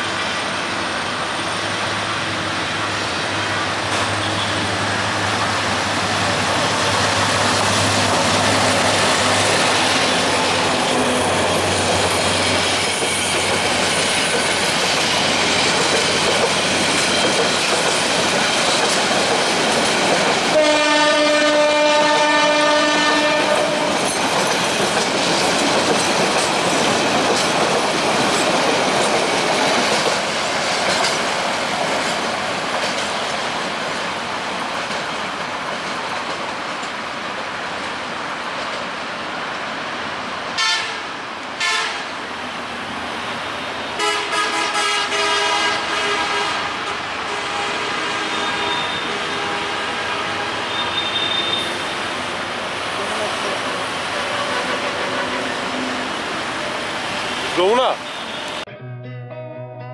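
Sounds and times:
locomotive engine droning: 0:00.4 - 0:12.9
train wheels clattering on track: 0:01.4 - 0:39.0
train horn chord: 0:20.5 - 0:24.0, 0:40.6 - 0:41.0, 0:41.6 - 0:42.0, 0:44.0 - 0:51.6.

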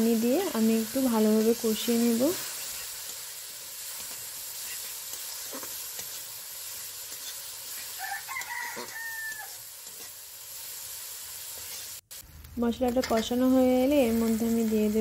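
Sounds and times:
masala sizzling in a wok: 0:00.0 - 0:15.0
metal spatula scraping a pan: 0:02.1 - 0:10.3, 0:11.4 - 0:12.0
rooster crowing: 0:08.0 - 0:09.6.

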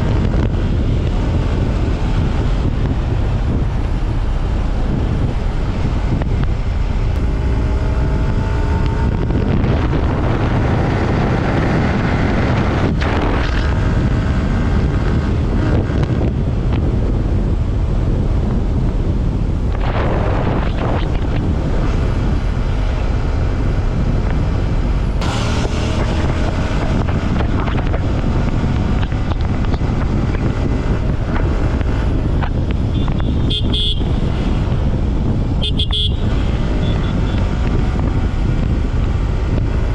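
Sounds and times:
motorcycle engine at speed: 0:00.0 - 0:39.9
wind rushing over microphone: 0:00.0 - 0:39.9
short horn toot: 0:35.6 - 0:37.4.

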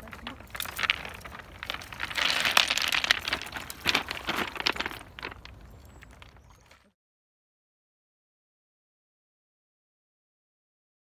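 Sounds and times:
footsteps crunching on pebbles: 0:00.0 - 0:06.9
stones clicking and clattering: 0:00.0 - 0:06.9.

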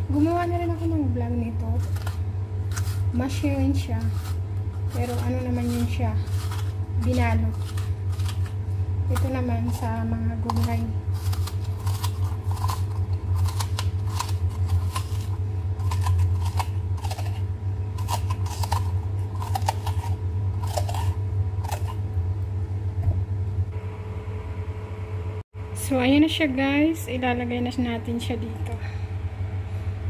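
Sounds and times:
steady low hum: 0:00.0 - 0:30.0
vegetable corer scraping: 0:01.8 - 0:22.0.

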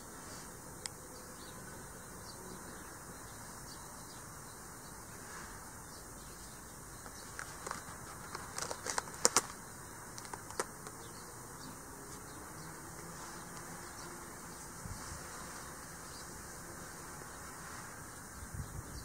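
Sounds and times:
faint hiss: 0:00.0 - 0:01.5, 0:13.0 - 0:19.0
paper page crackling and rustling: 0:07.0 - 0:11.0.

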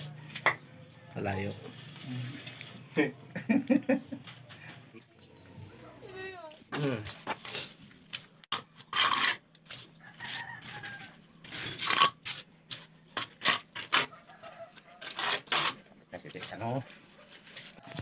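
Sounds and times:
trowel scraping wet mortar: 0:08.5 - 0:16.6.

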